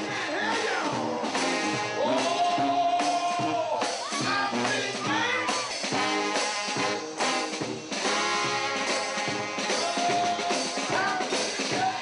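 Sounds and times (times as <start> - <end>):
man singing: 0.0 - 5.6, 9.2 - 12.0
band playing steady beat: 0.0 - 12.0.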